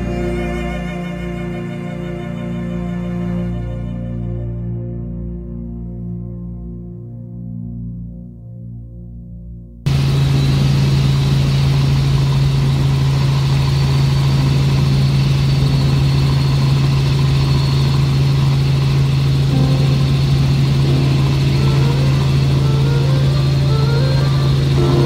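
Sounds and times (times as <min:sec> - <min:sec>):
helicopter engine and rotor drone: 0:09.9 - 0:25.0.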